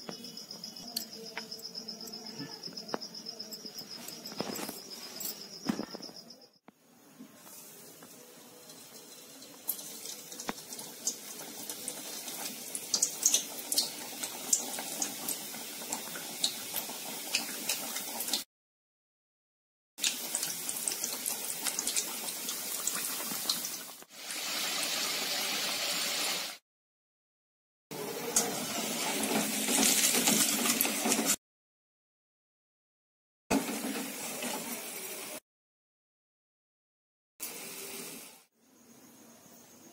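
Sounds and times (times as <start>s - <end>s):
food deep-frying in hot oil: 7.4s - 18.5s, 20.0s - 26.6s, 27.9s - 31.4s, 33.5s - 35.4s, 37.4s - 38.5s
oil popping and crackling: 7.5s - 18.4s, 20.0s - 24.8s, 28.3s - 31.4s.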